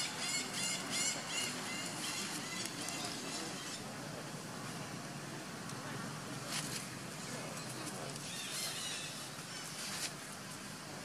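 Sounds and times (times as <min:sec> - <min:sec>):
high-pitched animal calls: 0:00.0 - 0:03.8, 0:08.2 - 0:09.7
outdoor background noise: 0:00.0 - 0:11.0.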